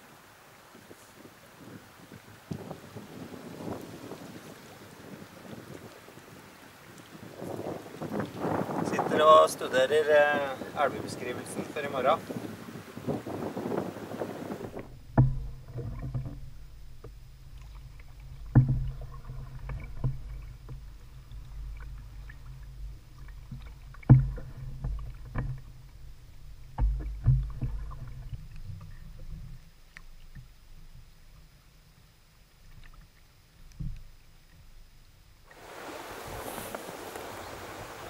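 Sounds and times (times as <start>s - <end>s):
low rumble of water and hull: 0.0s - 38.0s
paddle knocking against canoe: 11.4s - 31.1s.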